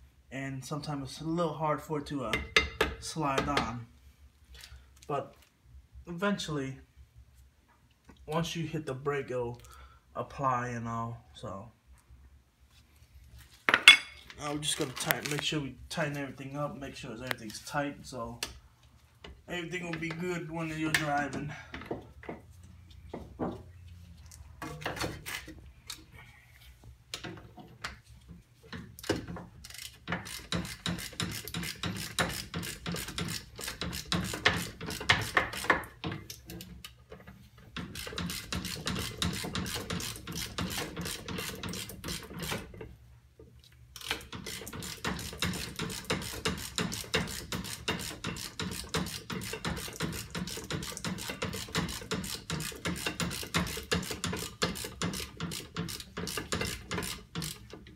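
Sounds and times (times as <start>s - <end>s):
ratchet wrench clicking: 29.0s - 36.4s, 37.8s - 42.6s, 44.0s - 57.9s.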